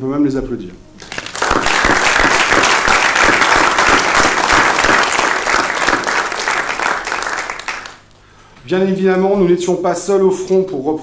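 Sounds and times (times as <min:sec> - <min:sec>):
crowd applause: 0:01.0 - 0:08.0.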